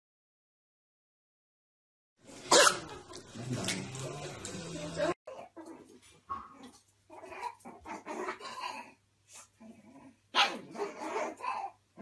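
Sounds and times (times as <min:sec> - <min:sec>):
puppy barking: 0:02.5 - 0:03.0, 0:10.3 - 0:11.8.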